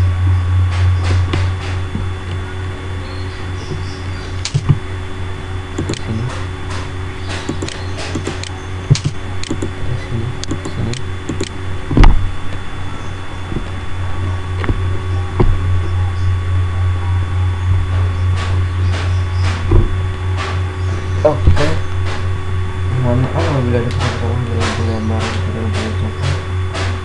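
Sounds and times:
steady low hum: 0.0s - 27.0s
mouse and keyboard clicks: 5.8s - 6.1s, 6.7s - 9.8s, 10.4s - 11.5s
loud thump: 11.9s - 12.3s, 19.0s - 20.5s.

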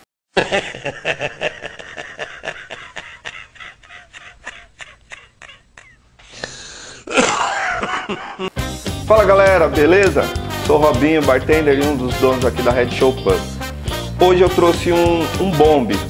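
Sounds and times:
elderly man laughing: 0.4s - 6.3s, 7.1s - 8.6s.

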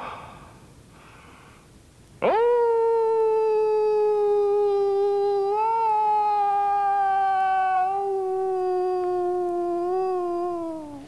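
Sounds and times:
man imitating wolf howl: 2.2s - 11.0s.

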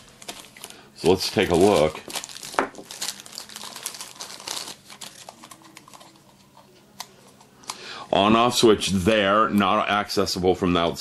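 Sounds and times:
plastic bag crinkling: 0.0s - 6.4s.

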